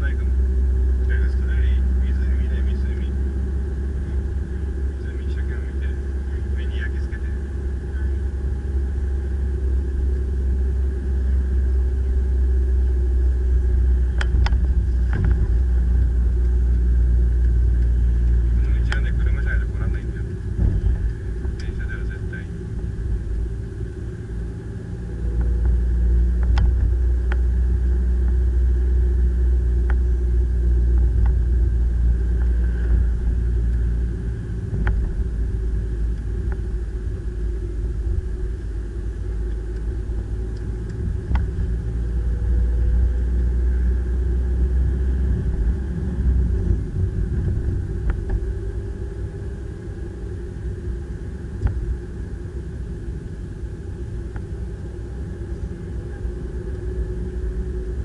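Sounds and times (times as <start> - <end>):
car engine and road rumble: 0.0 - 58.0
light ticks: 17.4 - 19.1.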